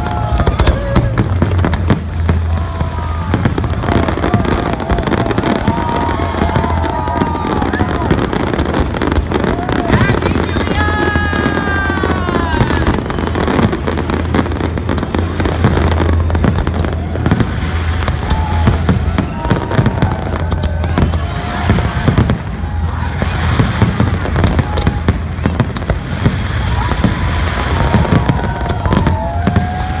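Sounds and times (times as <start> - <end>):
fireworks bangs and crackling: 0.0 - 30.0.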